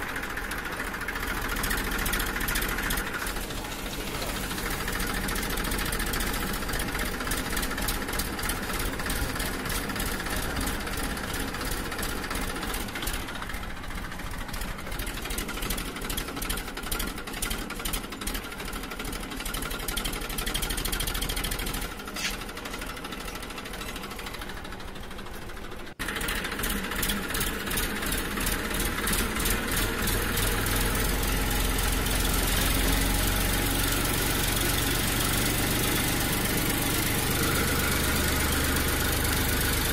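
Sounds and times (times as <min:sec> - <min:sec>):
fast-pulsing engine running: 0:00.0 - 0:39.9.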